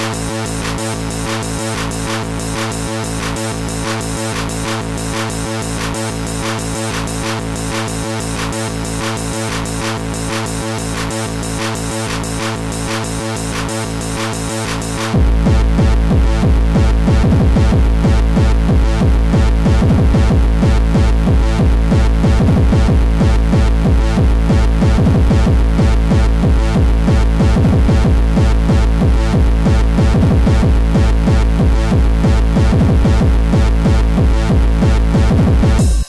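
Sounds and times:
heavy bass: 0.0s - 36.0s
looping synth lines: 0.0s - 36.0s
fast kick drum: 14.3s - 36.0s.

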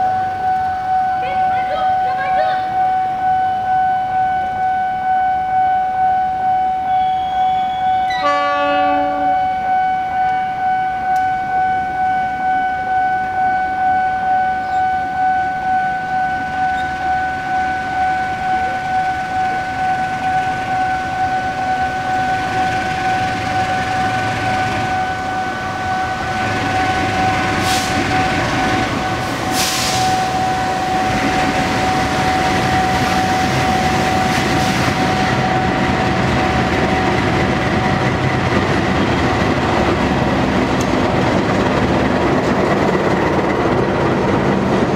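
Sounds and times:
locomotive engine and wheels rumbling: 0.0s - 44.9s
pulsing high warning tone: 0.0s - 44.9s
short hissing blasts: 29.5s - 30.2s.

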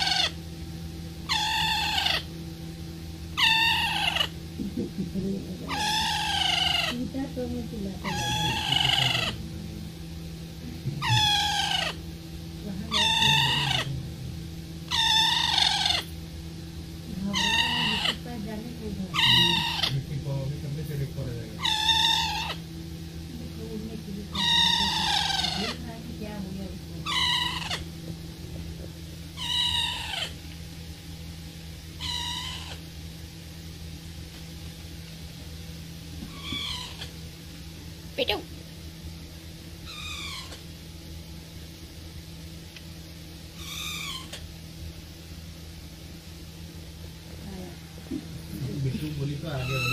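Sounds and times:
parrot calling: 0.0s - 0.4s, 1.2s - 2.3s, 3.3s - 4.9s, 5.6s - 7.1s, 8.0s - 9.4s, 10.9s - 12.0s, 12.9s - 14.0s, 14.8s - 16.2s, 17.2s - 18.4s, 19.1s - 20.1s, 21.6s - 22.7s, 24.3s - 25.9s, 27.0s - 27.9s, 29.4s - 30.5s, 32.0s - 32.9s, 36.2s - 37.2s, 39.8s - 40.7s, 43.5s - 44.5s, 49.5s - 49.9s
steady low hum: 0.0s - 49.9s.

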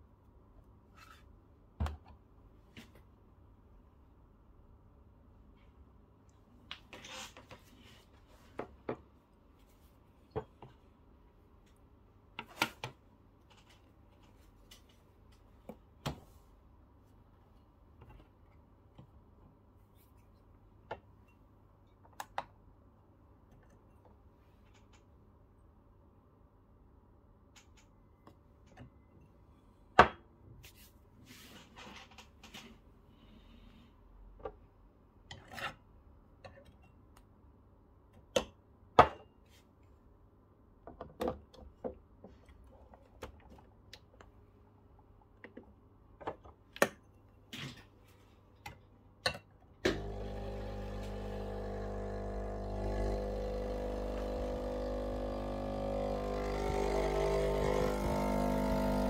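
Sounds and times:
espresso pump humming: 49.9s - 59.0s.

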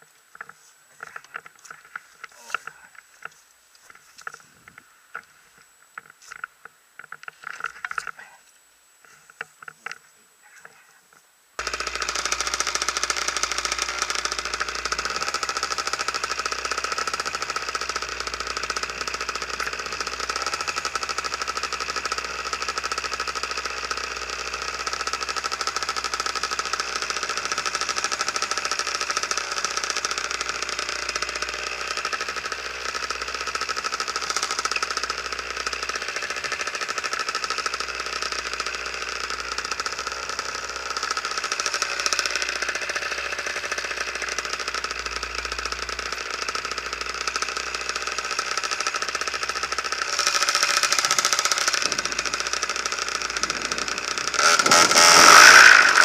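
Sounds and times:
gear clicking and rustling: 0.0s - 56.0s
two-stroke engine buzzing: 11.6s - 56.0s.

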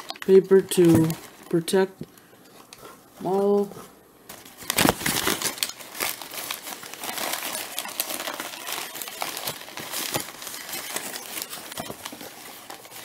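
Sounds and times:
packing paper crinkling: 0.0s - 1.7s, 4.3s - 13.0s.

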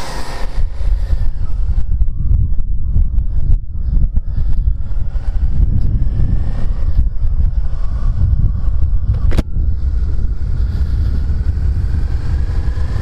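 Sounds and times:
motorcycle engine running: 0.0s - 13.0s
wind buffeting microphone: 0.0s - 13.0s
sharp click: 9.1s - 9.5s.

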